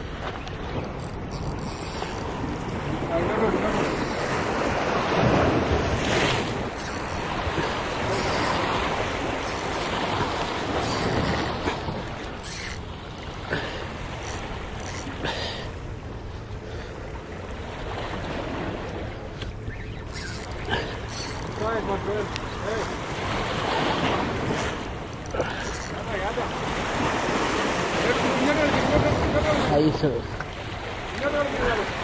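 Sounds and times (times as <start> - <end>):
wind on microphone: 0.0 - 15.3
surf washing over rocks: 2.0 - 15.8, 20.7 - 32.0.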